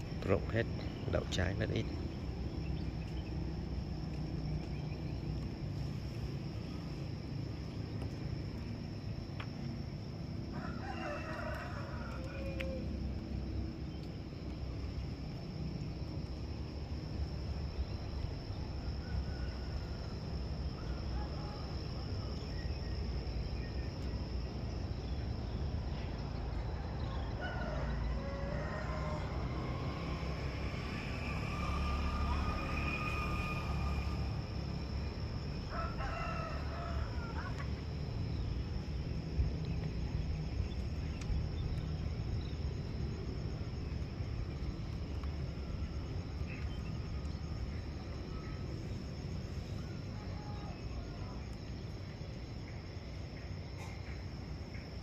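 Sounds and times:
rooster crowing: 10.5s - 13.2s, 20.8s - 22.4s, 27.0s - 34.3s, 35.4s - 37.8s, 49.7s - 51.5s
high-pitched insect drone: 28.8s - 37.6s.

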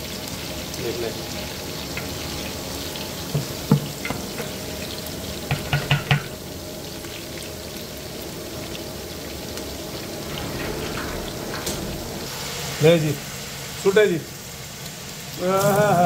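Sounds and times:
onions sizzling in oil: 0.0s - 16.0s
sharp knocks: 5.5s - 6.3s.

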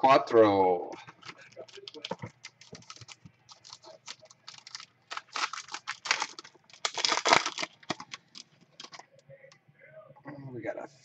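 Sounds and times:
foil wrapper crinkling and tearing: 1.2s - 9.1s.

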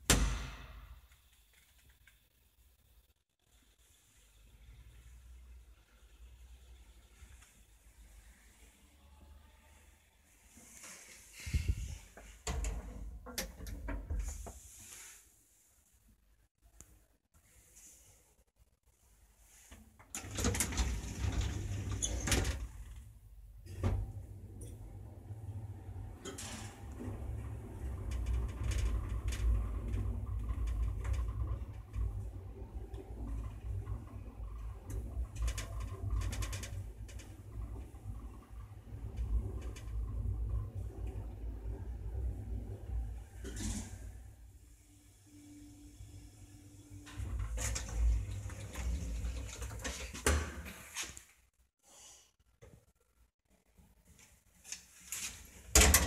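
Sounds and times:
elevator doors rattling open: 20.2s - 22.8s, 55.7s - 56.0s
elevator rumbling: 20.2s - 23.0s, 23.7s - 44.5s, 45.5s - 50.2s
elevator clicks and rattles: 55.7s - 56.0s.

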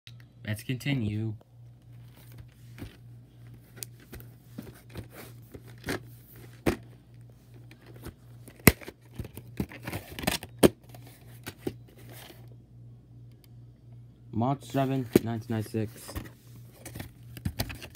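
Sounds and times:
low steady hum: 0.1s - 17.9s
plastic cases clicking and rustling: 2.1s - 12.4s, 15.0s - 17.9s.

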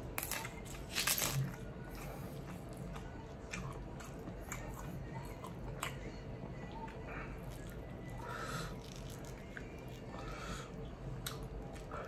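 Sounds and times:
salad leaf tearing and crackling: 0.2s - 1.5s, 8.8s - 10.0s.

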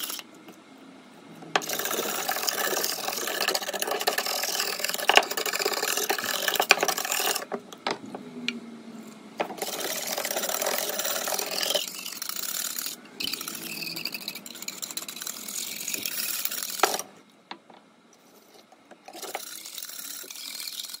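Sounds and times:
whisk scraping in a saucepan: 0.0s - 0.2s, 1.6s - 7.6s, 9.4s - 17.0s, 18.2s - 21.0s.

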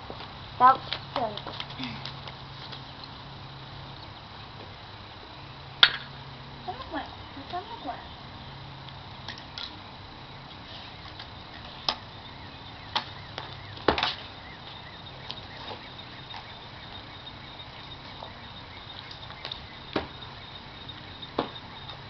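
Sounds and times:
outdoor background noise: 0.0s - 22.0s
sharp knocks: 21.4s - 21.6s.

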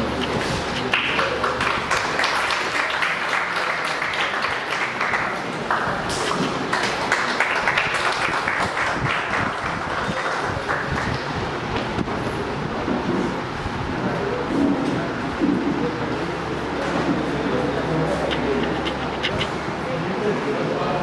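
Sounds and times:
audience applauding: 0.8s - 11.4s.

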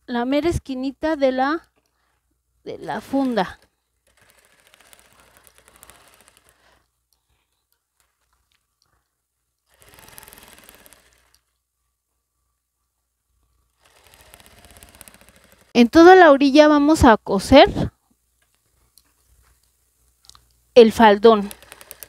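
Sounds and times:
sewing machine stitching: 2.8s - 6.8s, 9.7s - 11.5s, 13.7s - 15.8s, 21.3s - 22.0s.

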